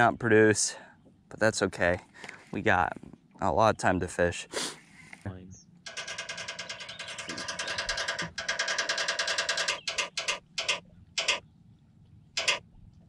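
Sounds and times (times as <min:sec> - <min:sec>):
spinner wheel ticking: 0:05.9 - 0:11.4, 0:12.4 - 0:12.6.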